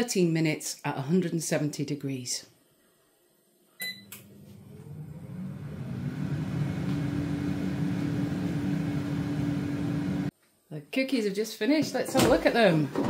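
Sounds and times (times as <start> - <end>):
air fryer start button beep: 3.8 - 4.3
air fryer fan humming: 3.8 - 10.3.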